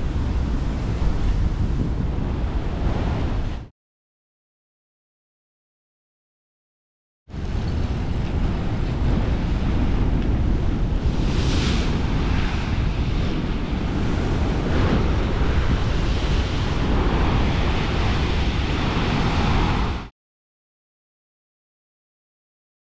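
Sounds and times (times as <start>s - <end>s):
ocean surf breaking: 0.0s - 3.7s, 7.3s - 20.1s
wind rumbling on microphone: 0.0s - 3.7s, 7.3s - 20.1s.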